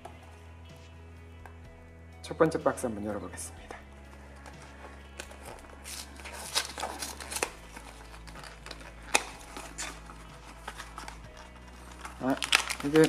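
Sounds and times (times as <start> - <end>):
cardboard box opening: 4.4 - 13.0.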